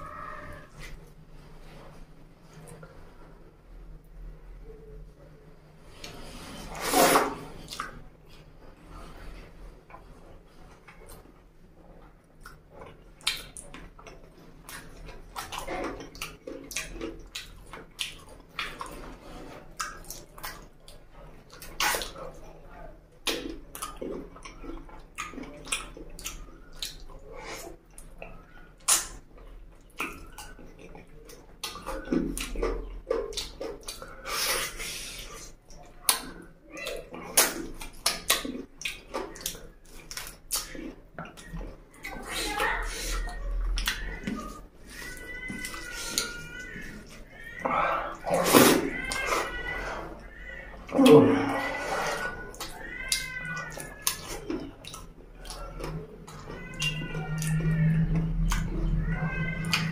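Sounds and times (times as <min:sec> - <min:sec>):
wet chewing and lip smacks: 0:12.1 - 0:19.1, 0:23.2 - 0:48.8, 0:52.3 - 0:59.0.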